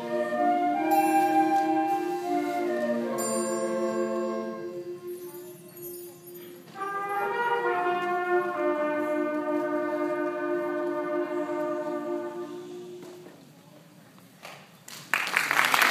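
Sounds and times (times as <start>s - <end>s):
concert band sustained chord: 0.0s - 7.6s.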